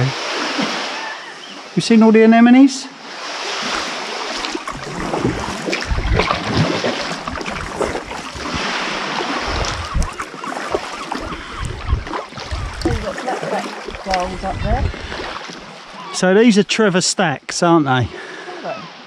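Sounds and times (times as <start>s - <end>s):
paddle splashing water: 0.0s - 1.8s, 3.0s - 16.2s
wind rumbling on microphone: 3.6s - 16.0s.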